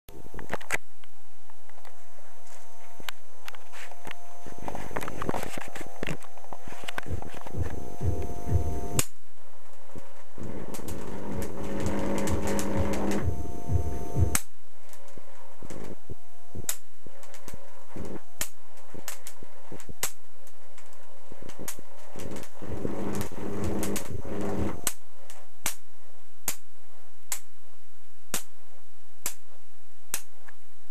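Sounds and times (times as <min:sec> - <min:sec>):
buzzing electric arc: 0:01.7 - 0:25.8
spark cracks: 0:01.7 - 0:27.5.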